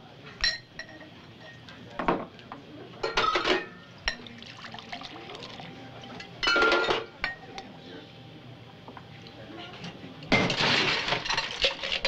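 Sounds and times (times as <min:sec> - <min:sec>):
barware clinking: 0:00.4 - 0:02.2, 0:03.0 - 0:07.7, 0:10.3 - 0:12.0
drink pouring into glass: 0:04.1 - 0:06.3.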